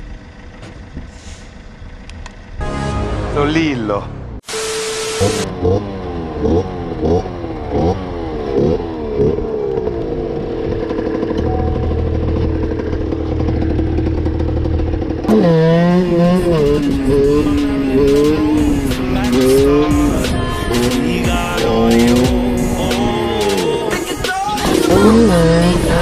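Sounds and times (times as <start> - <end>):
static hiss: 4.4 - 5.4
two-stroke motorcycle engine revving: 5.0 - 26.0.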